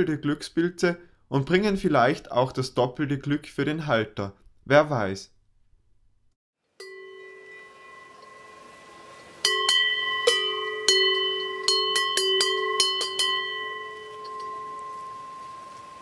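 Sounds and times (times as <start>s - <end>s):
cowbell clanging: 6.8s - 16.0s.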